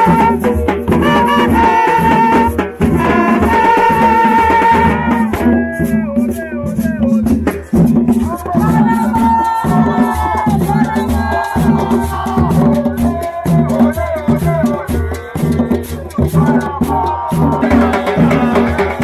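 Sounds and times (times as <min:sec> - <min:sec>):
trumpets playing: 0:00.0 - 0:05.8
steady drum beat: 0:00.0 - 0:19.0
fans chanting: 0:08.6 - 0:19.0.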